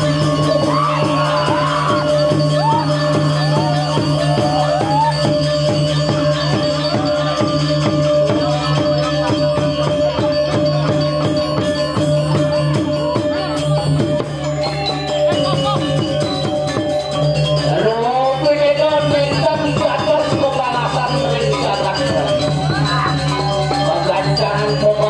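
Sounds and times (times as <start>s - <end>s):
gamelan ensemble playing: 0.0s - 25.0s.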